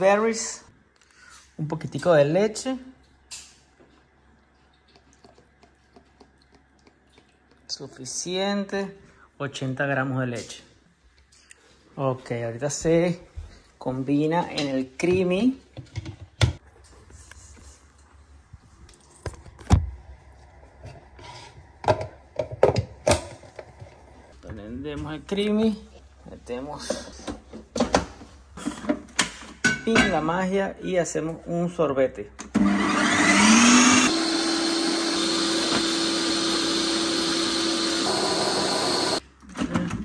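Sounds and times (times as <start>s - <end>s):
ice cream maker humming: 32.5s - 39.2s.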